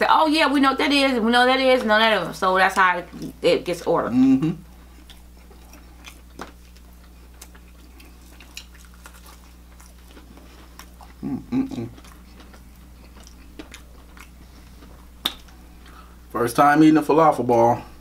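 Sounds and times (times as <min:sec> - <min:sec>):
steady low hum: 0:00.0 - 0:18.0
quiet chewing: 0:04.6 - 0:16.2.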